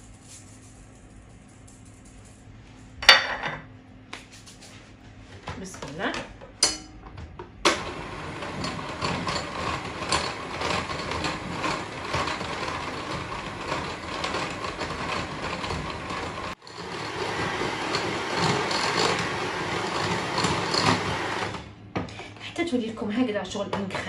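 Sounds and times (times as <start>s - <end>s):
electric hand mixer running: 7.7s - 21.7s.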